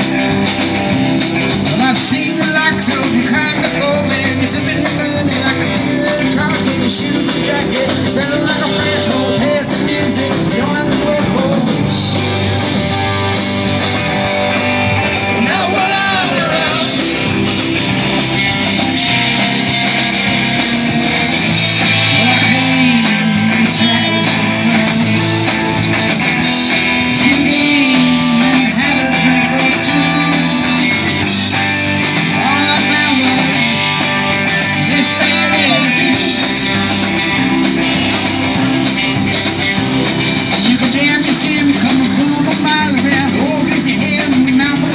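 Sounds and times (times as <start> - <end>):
drum kit: 0.0 - 44.9
electric guitars: 0.0 - 44.9
lead singer singing: 1.6 - 12.0, 15.0 - 17.4, 21.6 - 25.8, 26.9 - 31.1, 32.2 - 44.9.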